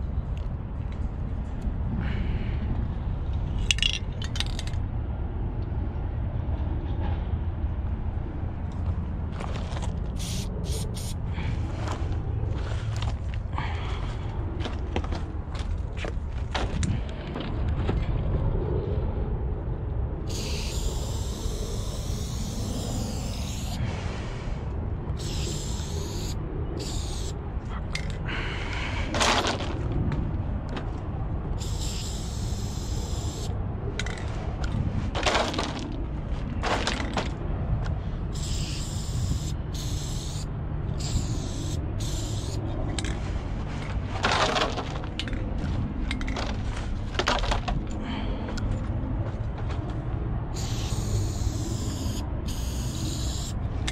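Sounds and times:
steady low rumble: 0.0 - 53.9
spray paint can hissing: 10.2 - 11.2, 20.3 - 23.9, 25.2 - 27.4, 31.6 - 33.5, 38.3 - 42.6, 50.5 - 53.9.

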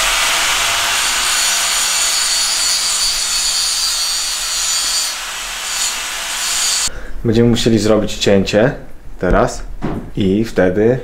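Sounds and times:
power tool cutting: 0.0 - 6.9.

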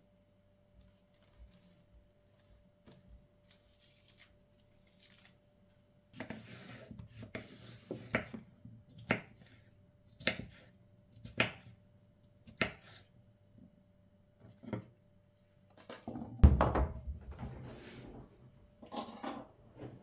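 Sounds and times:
knife chopping on wooden board: 10.2 - 10.6.

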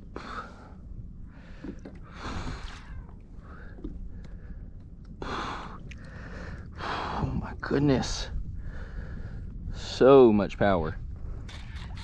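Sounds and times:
man breathing hard: 0.0 - 7.4, 8.6 - 9.6
wind rumbling on microphone: 0.0 - 12.0.

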